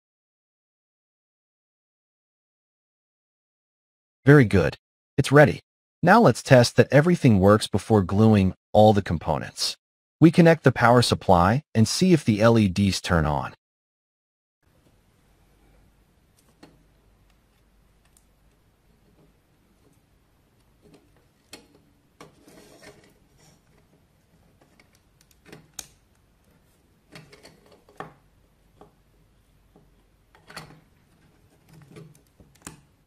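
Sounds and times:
plastic parts clicking and knocking: 20.6s - 29.1s, 29.7s - 33.0s.

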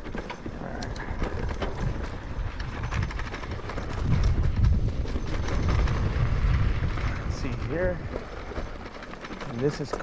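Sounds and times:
bike knocks and rattles: 0.0s - 10.0s
wind rumble on microphone: 0.7s - 8.9s.

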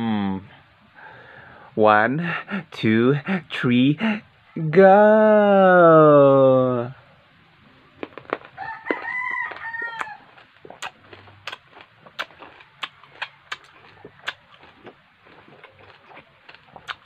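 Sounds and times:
wet chewing clicks: 8.0s - 17.0s
rooster crowing: 8.5s - 10.4s.

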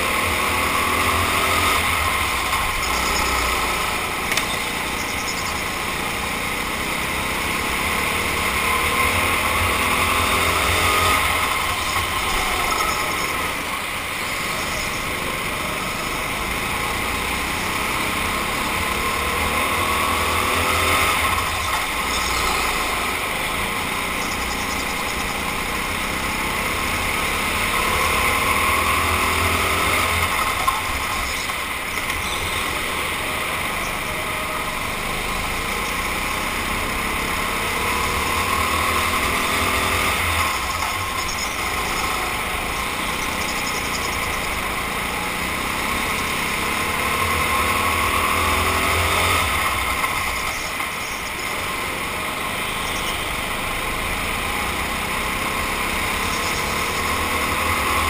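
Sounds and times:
go-kart engine revving: 0.0s - 58.0s.

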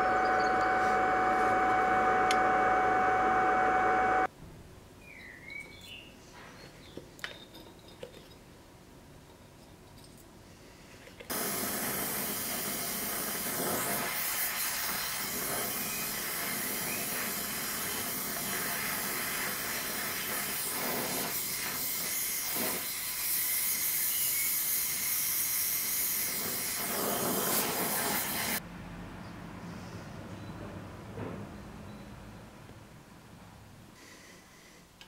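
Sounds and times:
gas torch flame hissing: 11.3s - 28.6s.

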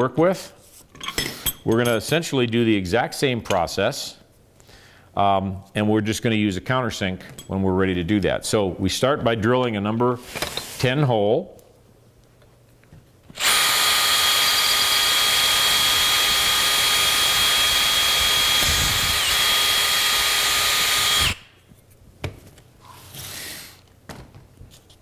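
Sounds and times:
cordless drill drilling metal: 13.4s - 21.5s.

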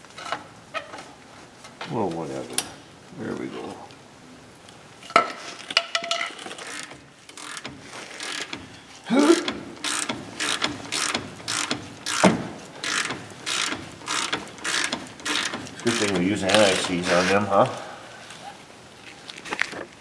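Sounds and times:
ratchet clicking: 6.4s - 8.7s, 9.4s - 17.3s.

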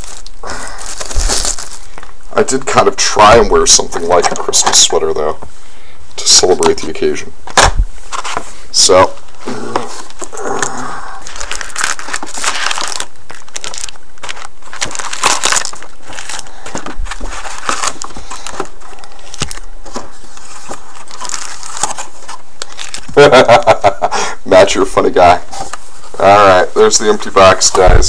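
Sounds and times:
wrapped card packs crinkling: 0.0s - 5.0s, 9.8s - 23.8s
scrapes and shuffles: 7.9s - 10.2s, 16.0s - 18.9s.

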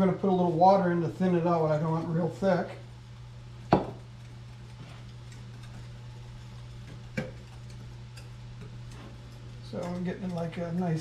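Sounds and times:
steady low hum: 0.0s - 11.0s
stirring ticks: 4.0s - 11.0s.

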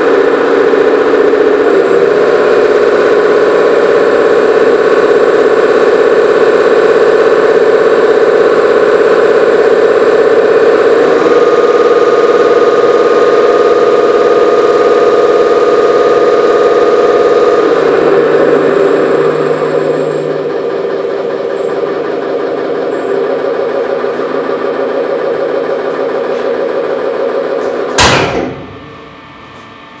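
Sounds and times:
engine humming with whine: 0.0s - 30.0s
sharp thump: 28.0s - 29.1s.

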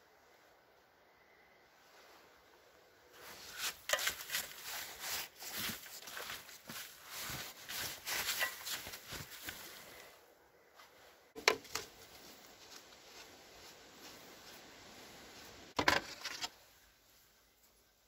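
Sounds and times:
gloved hand rustling and scraping: 3.1s - 10.1s.

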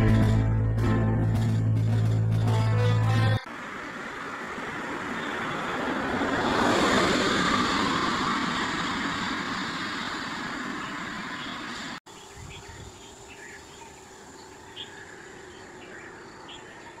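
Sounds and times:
car driving past: 3.6s - 12.0s.

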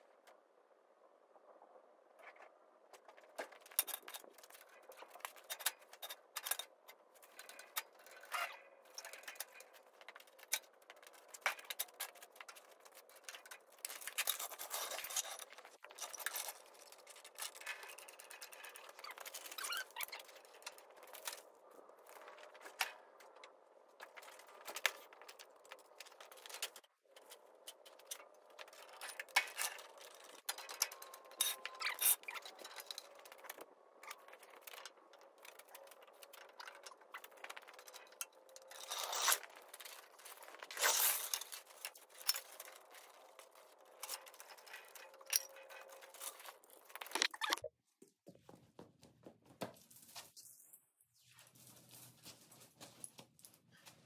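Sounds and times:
scraping clinking and rattling: 3.0s - 47.3s.

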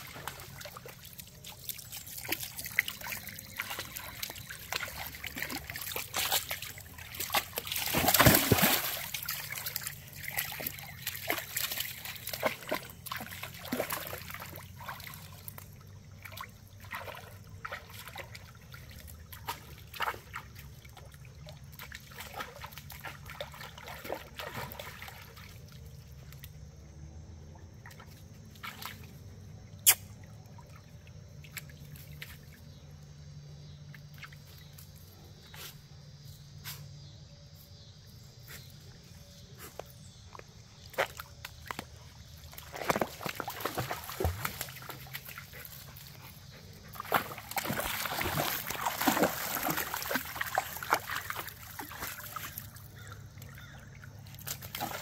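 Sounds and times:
dogs splashing in water: 0.0s - 26.7s, 27.3s - 29.5s, 40.4s - 55.0s
creek water trickling over rocks: 0.0s - 35.3s, 39.2s - 55.0s.

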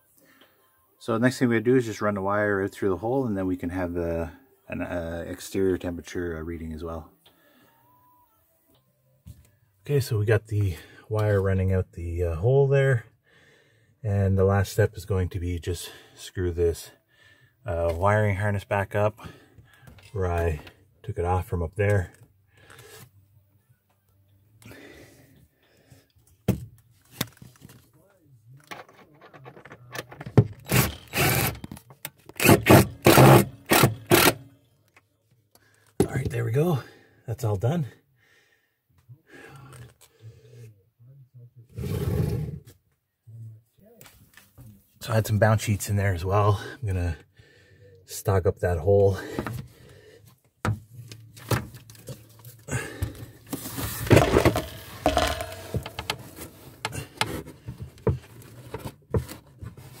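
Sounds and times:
screw driven into wood rasping: 30.6s - 31.6s, 32.3s - 34.4s.

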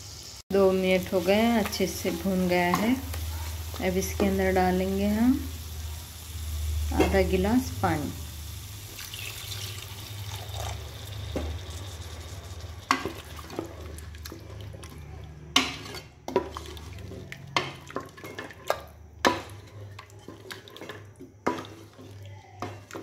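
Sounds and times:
water pouring into a pot: 8.0s - 15.4s
spatula stirring gravy: 11.3s - 23.0s.

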